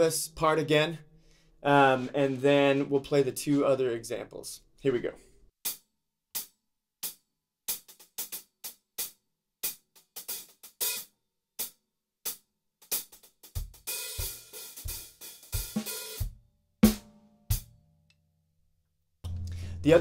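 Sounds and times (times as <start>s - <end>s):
hi-hat played with sticks: 1.7s - 2.8s, 6.4s - 17.7s.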